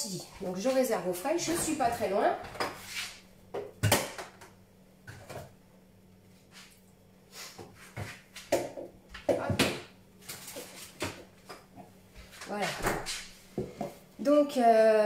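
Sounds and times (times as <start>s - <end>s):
refrigerator door opening and shutting: 12.7s - 13.2s.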